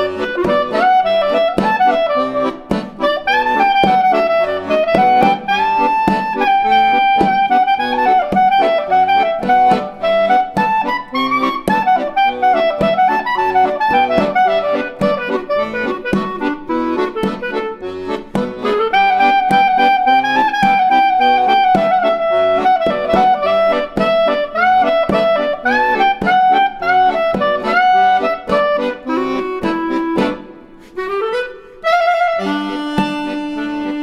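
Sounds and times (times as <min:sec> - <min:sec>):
instrumental background music: 0:00.0 - 0:34.0.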